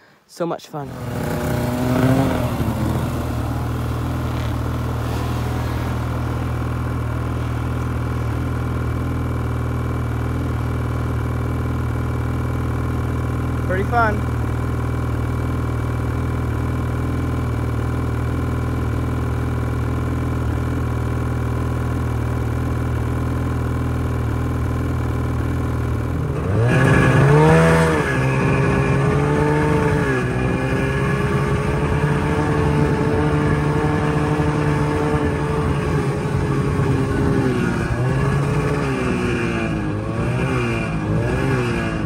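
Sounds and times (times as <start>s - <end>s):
snowmobile engine: 0.0s - 42.0s.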